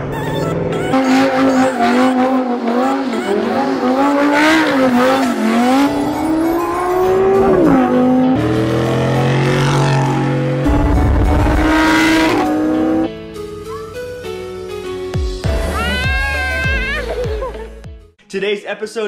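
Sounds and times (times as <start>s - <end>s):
pickup truck engine: 0.0s - 13.2s
sports car engine revving: 0.8s - 13.1s.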